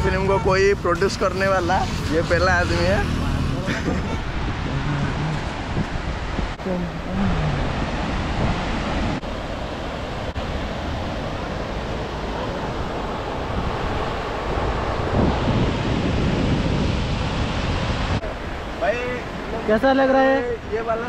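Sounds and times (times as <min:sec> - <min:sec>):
wind buffeting microphone: 0:01.8 - 0:19.7
surf washing onto beach: 0:07.5 - 0:21.0.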